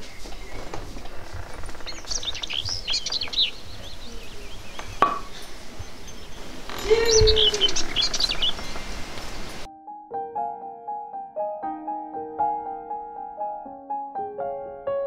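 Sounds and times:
songbirds chirping and singing: 0:00.0 - 0:09.7.

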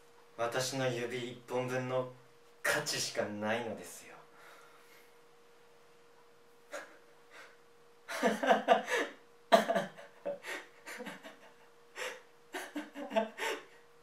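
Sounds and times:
man panting and gasping: 0:12.0 - 0:12.3, 0:13.3 - 0:13.8.

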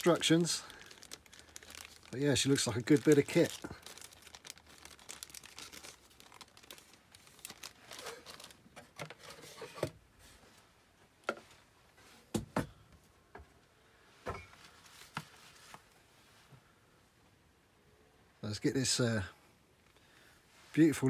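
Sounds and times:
plastic zip bag crinkling: 0:00.0 - 0:09.3.

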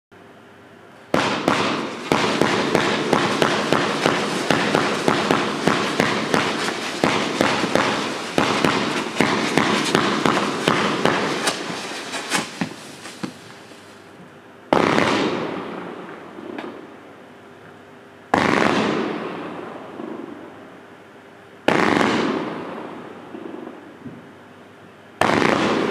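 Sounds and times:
firework bursts: 0:01.1 - 0:14.0, 0:14.7 - 0:15.9, 0:21.7 - 0:23.1, 0:25.2 - 0:25.9
fireworks shots: 0:01.1 - 0:14.0, 0:14.7 - 0:15.9, 0:18.3 - 0:20.4, 0:21.7 - 0:23.7, 0:25.2 - 0:25.9
firework hiss: 0:01.2 - 0:14.0.

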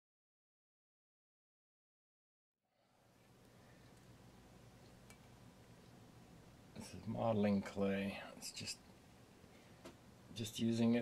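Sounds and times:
low steady hum: 0:02.7 - 0:11.0.

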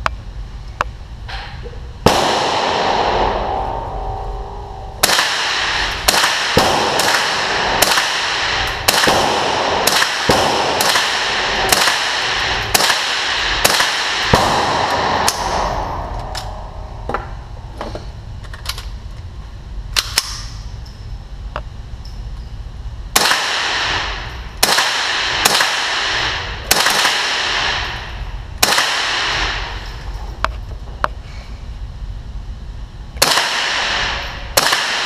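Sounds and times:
rifle shots cracking: 0:02.1 - 0:03.9, 0:05.0 - 0:16.7, 0:23.2 - 0:29.8, 0:33.2 - 0:35.0.

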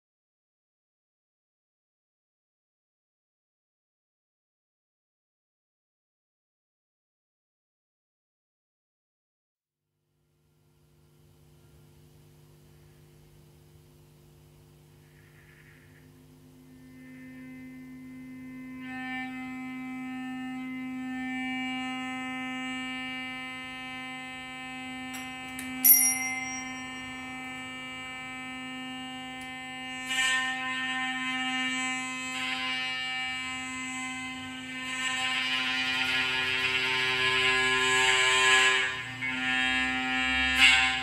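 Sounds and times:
electric guitar drone: 0:15.0 - 0:41.0
small bell ringing: 0:25.8 - 0:27.2.

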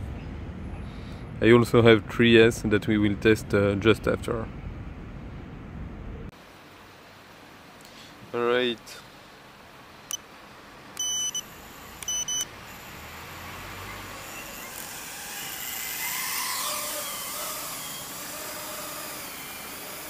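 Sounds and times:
electronic beeps: 0:11.0 - 0:12.9
quadcopter motors whining: 0:11.0 - 0:20.0.

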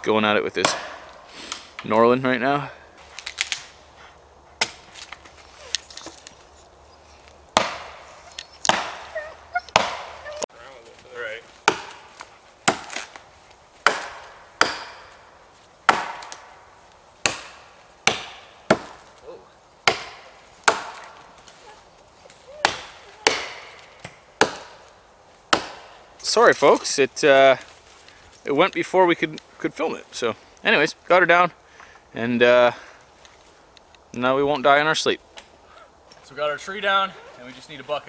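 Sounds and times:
axe chopping tree trunk: 0:00.6 - 0:01.6, 0:07.6 - 0:09.1, 0:09.7 - 0:10.2, 0:11.6 - 0:16.6, 0:17.2 - 0:19.1, 0:19.8 - 0:21.5, 0:22.6 - 0:24.9, 0:25.5 - 0:26.0.

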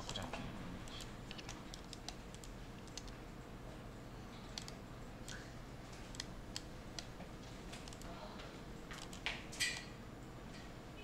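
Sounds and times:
mouse and keyboard clicks: 0:00.9 - 0:03.2, 0:04.5 - 0:05.4, 0:06.1 - 0:07.1, 0:08.9 - 0:09.9.

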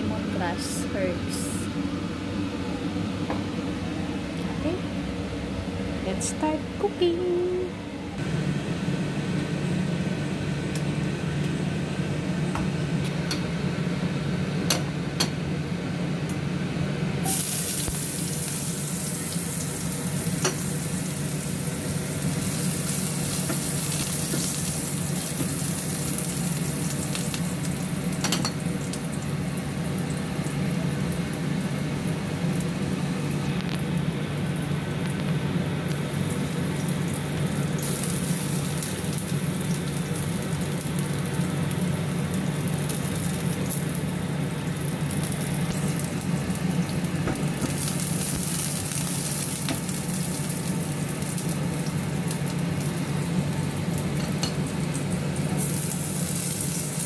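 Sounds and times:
steady low hum: 0:00.0 - 0:57.0
food sizzling in hot oil: 0:17.2 - 0:33.0, 0:36.0 - 0:57.0.

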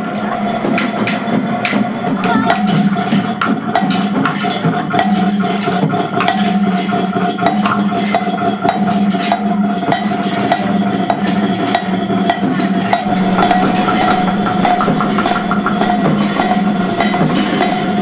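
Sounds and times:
wooden percussion: 0:00.1 - 0:18.0
steady high drone: 0:12.9 - 0:18.0
stick striking metal: 0:12.9 - 0:18.0
pulsing low hum: 0:13.0 - 0:18.0.

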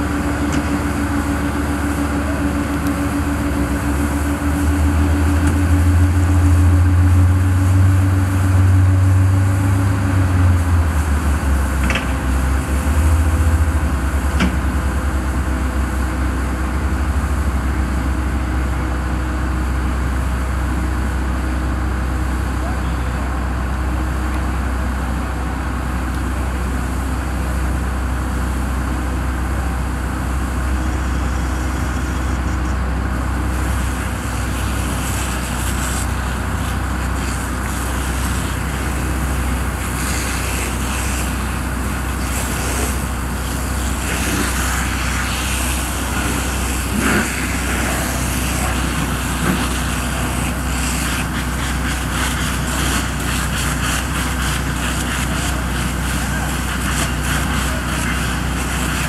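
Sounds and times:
road traffic drone: 0:00.0 - 0:59.0
vehicle engines idling: 0:00.0 - 0:59.0
tyre hiss from passing cars: 0:33.4 - 0:59.0.

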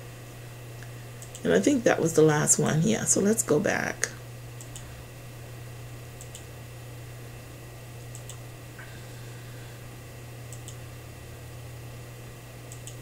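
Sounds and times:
low electrical hum: 0:00.0 - 0:13.0
computer mouse clicks: 0:01.2 - 0:01.4, 0:04.6 - 0:04.9, 0:06.2 - 0:06.5, 0:08.1 - 0:08.4, 0:10.5 - 0:10.8, 0:12.7 - 0:13.0.

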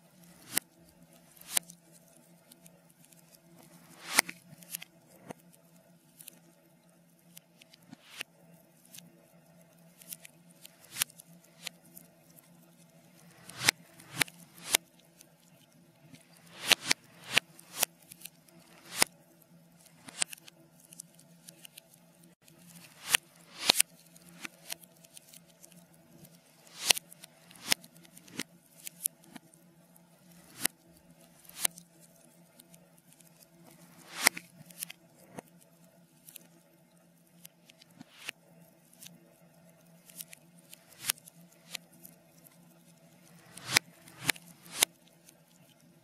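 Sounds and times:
faint steady hum: 0:00.0 - 0:46.0
reversed fire crackling: 0:13.0 - 0:14.8, 0:16.1 - 0:19.1, 0:22.7 - 0:24.8, 0:26.3 - 0:28.4.

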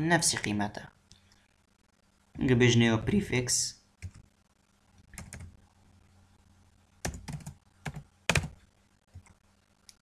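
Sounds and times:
computer keyboard typing: 0:04.0 - 0:04.2, 0:05.1 - 0:05.6, 0:07.0 - 0:09.4.

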